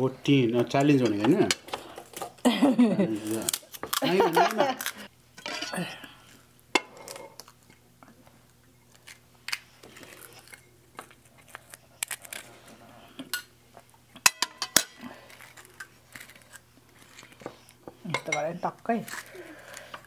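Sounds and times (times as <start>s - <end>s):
metal spoons clinking on ceramic plates: 5.4s - 6.0s, 14.2s - 15.0s, 18.1s - 18.6s.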